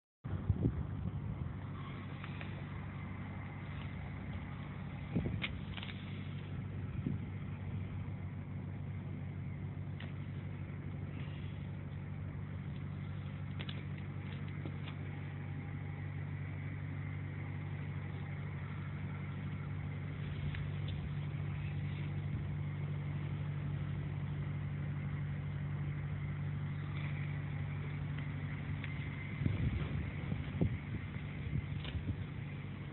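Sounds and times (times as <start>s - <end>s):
vehicle engine idling: 0.2s - 32.9s.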